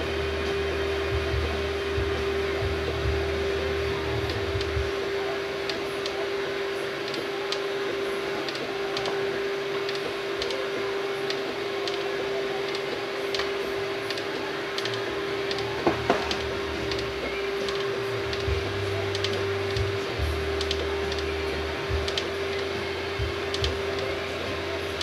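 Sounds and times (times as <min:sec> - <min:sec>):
printer motor whine: 0:00.0 - 0:25.0
sharp printer clicks: 0:07.0 - 0:24.2.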